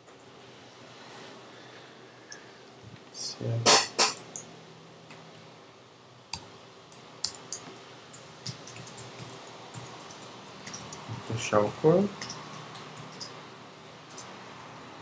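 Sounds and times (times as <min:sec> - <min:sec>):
keyboard keys clicking: 0:07.0 - 0:13.4.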